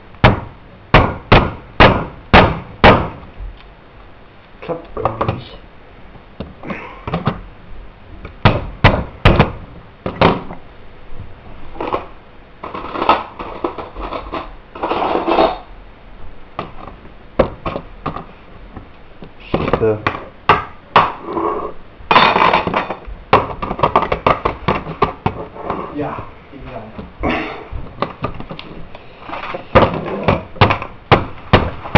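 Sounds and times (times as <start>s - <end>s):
noisy scraping: 11.2s - 15.7s, 21.0s - 30.6s.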